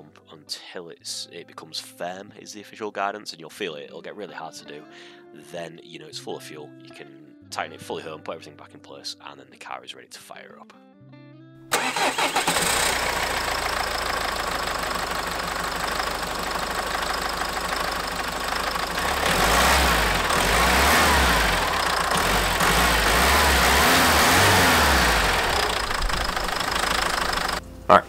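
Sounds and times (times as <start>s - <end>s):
diesel engine running: 11.8s - 28.0s.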